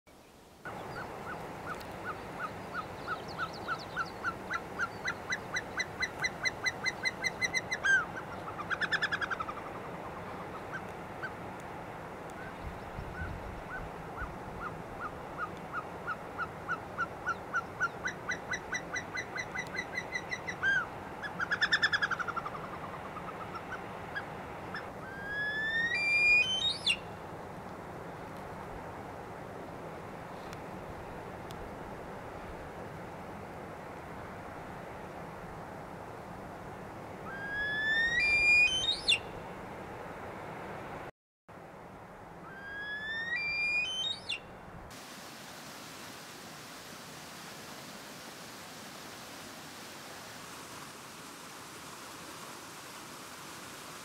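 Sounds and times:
bird whistled song: 0:25.1 - 0:27.0, 0:37.3 - 0:39.3, 0:42.5 - 0:44.5
steeply rising whistle: 0:37.3 - 0:39.2, 0:42.6 - 0:44.3.

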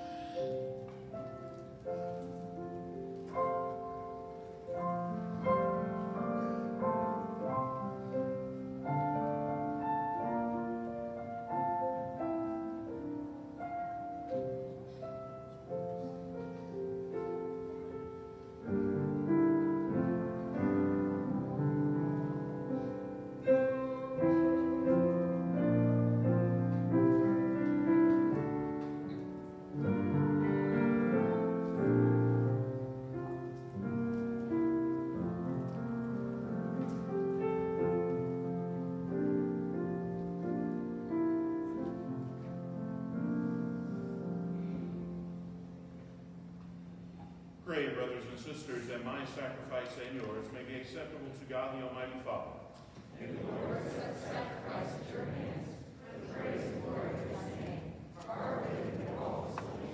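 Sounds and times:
slow solo piano piece: 0:00.0 - 0:47.6.

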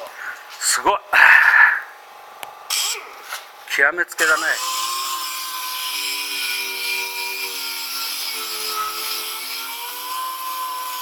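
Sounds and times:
power grinder grinding rusty metal: 0:04.2 - 0:11.0.

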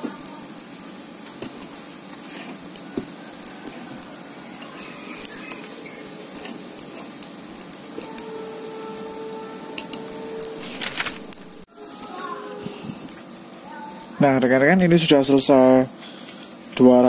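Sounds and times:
wire clicking and scraping on metal: 0:06.3 - 0:08.2.

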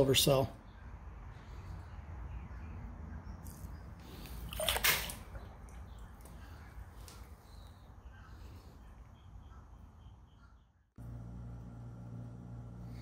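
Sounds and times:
low steady hum: 0:08.0 - 0:13.0.

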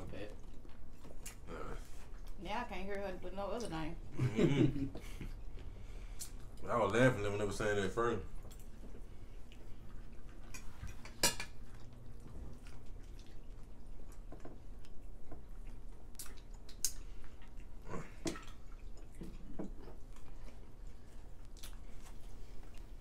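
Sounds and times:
wet chewing and lip-smacking: 0:00.0 - 0:03.8, 0:05.0 - 0:06.7, 0:08.2 - 0:23.0
tongs and forks clinking on plates: 0:10.5 - 0:11.8.

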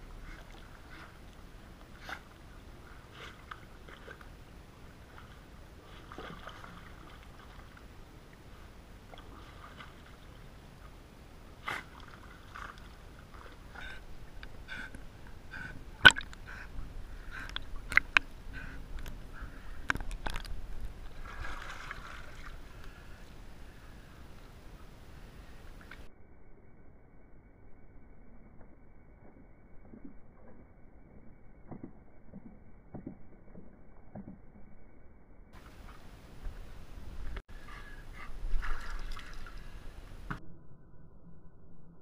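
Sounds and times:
pool water sloshing and splashing: 0:00.1 - 0:10.9, 0:11.6 - 0:14.3, 0:20.3 - 0:23.2, 0:38.4 - 0:40.3.

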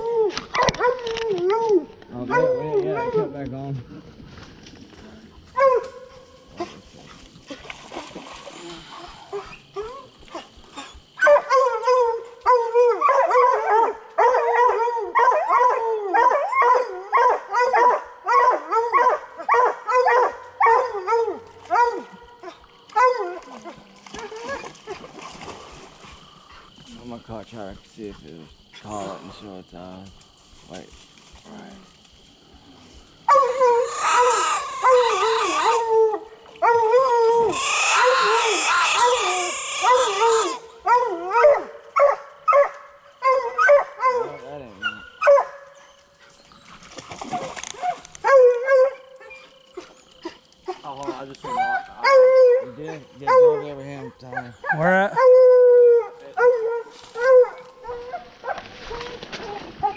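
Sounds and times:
faint crickets: 0:00.0 - 0:59.9
hounds barking: 0:00.5 - 0:03.4, 0:05.5 - 0:06.8, 0:11.2 - 0:24.7, 0:33.2 - 0:46.8, 0:47.8 - 0:59.9.

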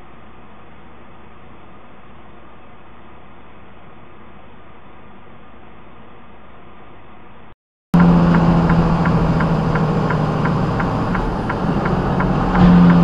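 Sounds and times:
light ticking: 0:08.0 - 0:13.0
road noise: 0:08.0 - 0:13.0
truck engine drone: 0:08.0 - 0:13.0.

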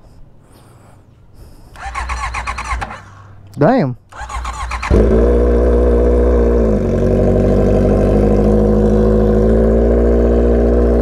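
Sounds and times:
motorcycle engine idling: 0:04.1 - 0:11.0.

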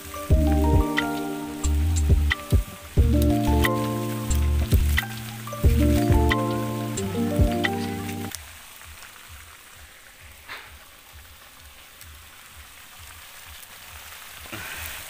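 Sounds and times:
pan simmering with sizzling hiss: 0:00.0 - 0:15.0.

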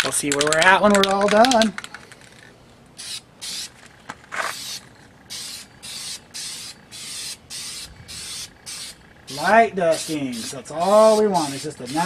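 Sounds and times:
spray paint can hissing: 0:03.0 - 0:03.8, 0:04.4 - 0:12.0.

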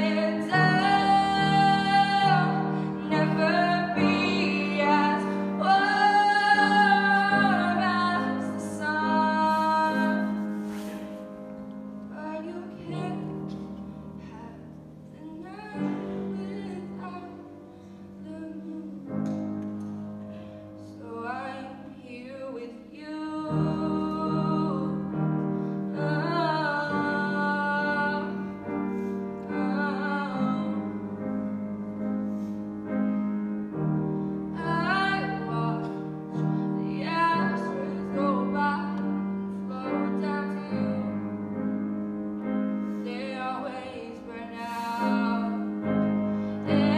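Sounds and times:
woman singing: 0:00.0 - 0:10.5, 0:12.1 - 0:19.4, 0:20.8 - 0:25.3, 0:25.9 - 0:28.7, 0:29.4 - 0:31.2, 0:34.5 - 0:41.4, 0:43.0 - 0:46.9
grand piano: 0:00.0 - 0:46.9.

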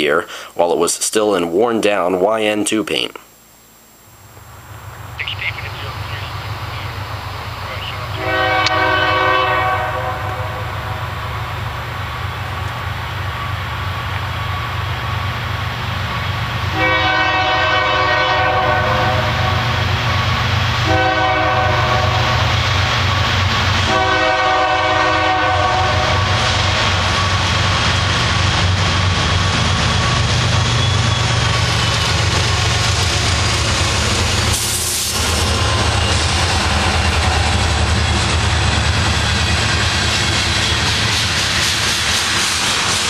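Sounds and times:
low rumble of locomotives: 0:04.2 - 0:43.0
locomotive horn blasts: 0:07.9 - 0:11.2, 0:16.7 - 0:20.2, 0:20.8 - 0:22.6, 0:23.8 - 0:26.5.

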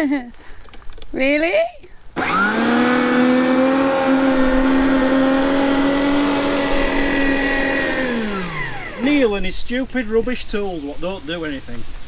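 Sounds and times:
electric motor whining: 0:02.2 - 0:09.3.

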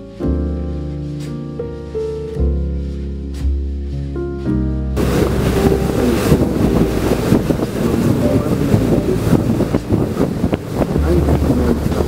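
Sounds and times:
boat rushing through water: 0:04.9 - 0:12.0
wind buffeting microphone: 0:04.9 - 0:12.0.

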